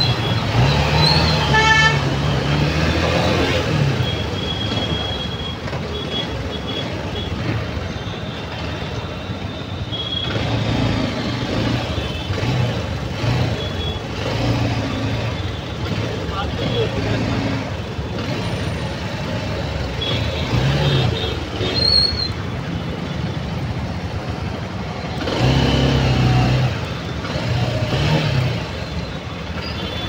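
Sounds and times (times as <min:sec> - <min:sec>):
horn toots: 0:00.0 - 0:02.3
traffic engines running: 0:00.0 - 0:30.0.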